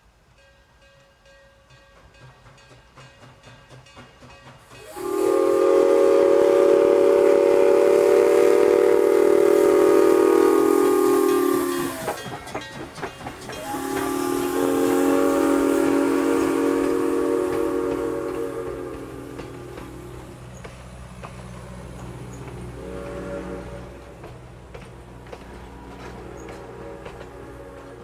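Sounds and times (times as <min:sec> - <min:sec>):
steam whistle blasts: 0:04.8 - 0:12.2, 0:13.6 - 0:20.2, 0:22.7 - 0:24.1, 0:26.6 - 0:28.0.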